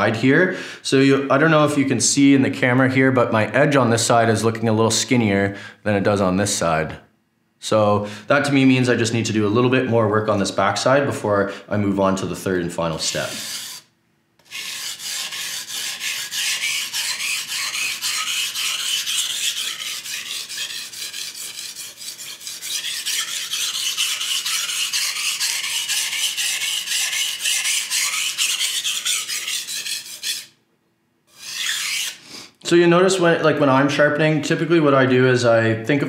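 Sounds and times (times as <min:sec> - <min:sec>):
knife scraping on whetstone: 0:13.1 - 0:30.6, 0:31.3 - 0:32.2.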